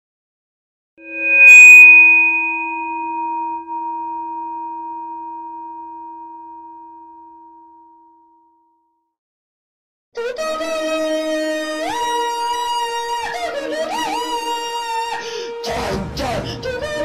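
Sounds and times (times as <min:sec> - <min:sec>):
bell-like metallic tone ringing: 0:01.0 - 0:08.6.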